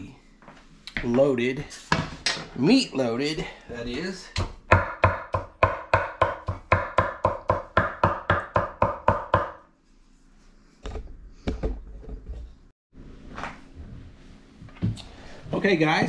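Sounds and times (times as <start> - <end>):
cleaver chopping on wooden board: 4.4 - 9.6.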